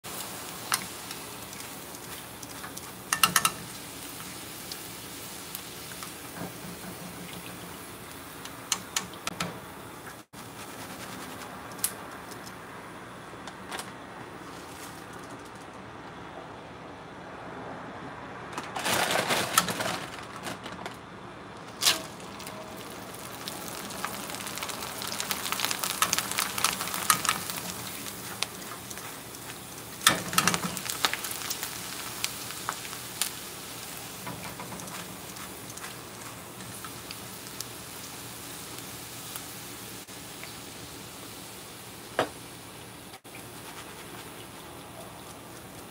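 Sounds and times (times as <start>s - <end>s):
snacks sizzling in hot oil: 0.0s - 9.3s, 21.7s - 45.9s.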